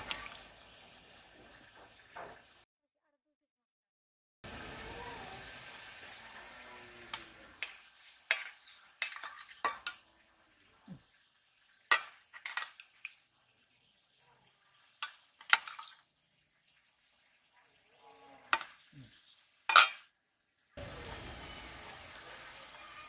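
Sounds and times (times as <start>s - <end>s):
metal spatula clinking on bowl: 7.1s - 10.0s.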